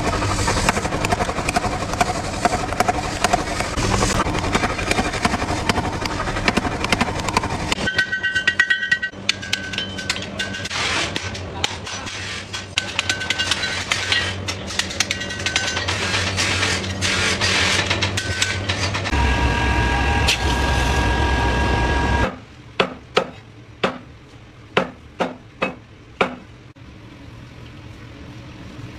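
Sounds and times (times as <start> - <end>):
machine running: 0.0 - 8.0, 19.0 - 22.3
steady low hum: 0.0 - 10.2.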